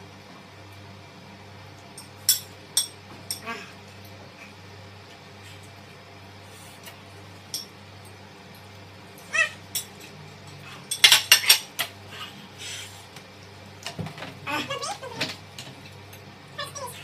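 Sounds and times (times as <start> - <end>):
forks and plates clattering: 10.9 - 11.9.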